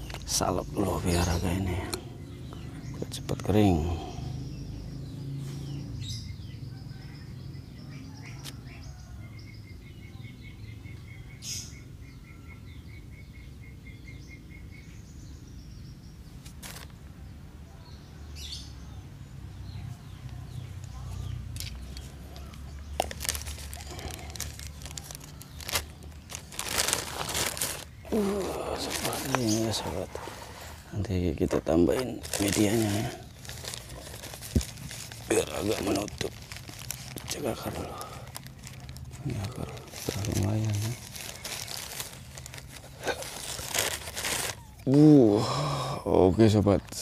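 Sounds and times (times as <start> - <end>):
bird chirping: 0.0 - 47.0
hands rustling plastic bag: 16.4 - 16.9, 21.5 - 30.8, 31.5 - 44.8.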